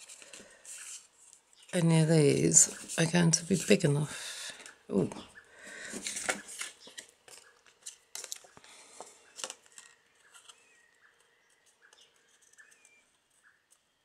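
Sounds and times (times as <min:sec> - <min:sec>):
cardstock rustling and clicking: 0:05.9 - 0:10.6.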